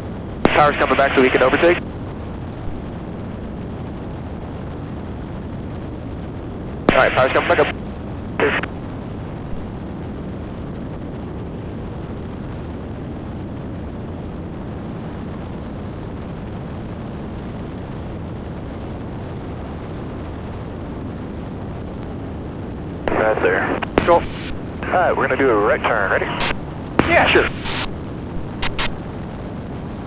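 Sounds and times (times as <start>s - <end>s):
airplane engine and propeller drone: 0.0s - 30.0s
rushing air: 23.1s - 29.3s.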